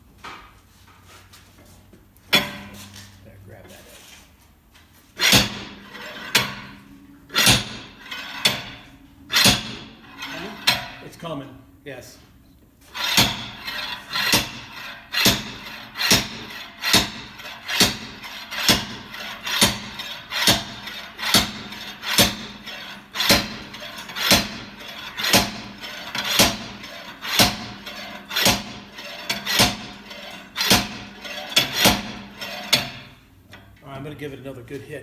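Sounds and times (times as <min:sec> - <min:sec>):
slide hammer metal clanks: 0:13.0 - 0:33.2.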